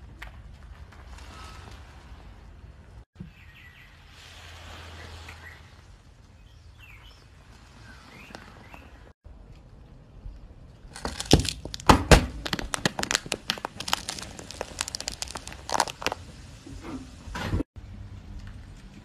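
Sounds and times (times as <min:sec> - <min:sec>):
metal can crushing and cracking: 0:10.9 - 0:16.3.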